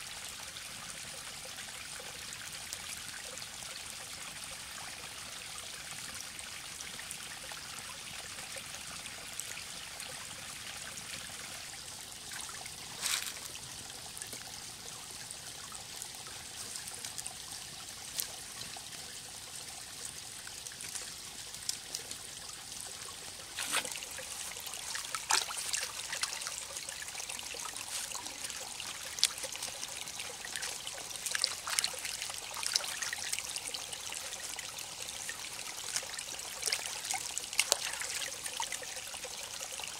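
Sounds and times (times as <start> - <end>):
stream trickling: 0.0 - 39.9
short clicks and splashes: 23.6 - 26.5.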